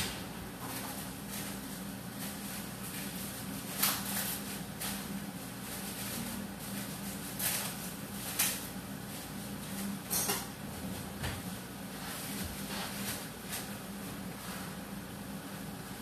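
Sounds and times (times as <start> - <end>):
low hum and hiss: 0.0 - 16.0.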